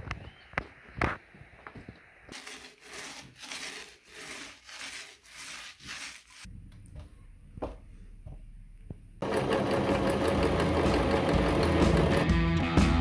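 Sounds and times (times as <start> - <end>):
sawing wood by hand: 2.3 - 6.5.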